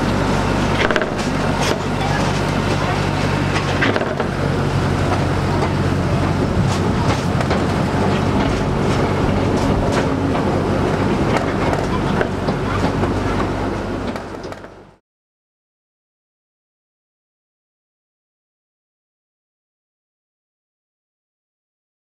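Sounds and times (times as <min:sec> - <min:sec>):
train wheels rumbling: 0:00.0 - 0:15.0
wheels clicking over track: 0:00.0 - 0:15.0.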